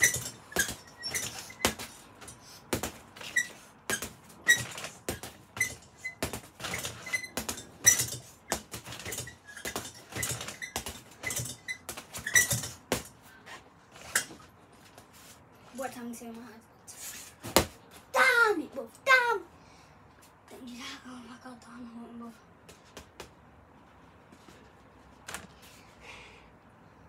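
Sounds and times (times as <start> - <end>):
gloves punching heavy bag: 0.0 - 13.2.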